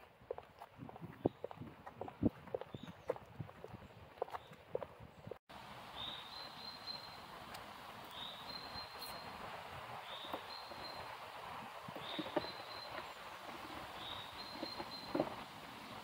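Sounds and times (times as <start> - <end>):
high-heel footsteps on pavement: 0.0 - 5.4
outdoor background hiss: 5.5 - 16.0.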